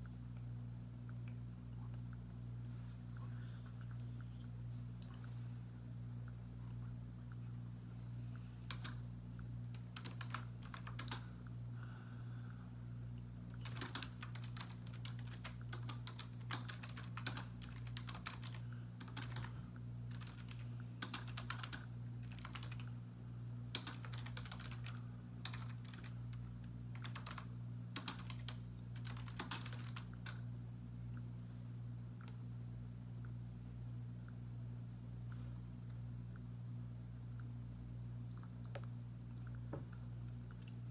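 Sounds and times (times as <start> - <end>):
steady low hum: 0.0 - 40.9
typing on computer keyboard: 8.7 - 9.0, 9.7 - 11.2, 13.6 - 19.5, 20.1 - 22.9, 23.7 - 26.2, 26.9 - 30.4.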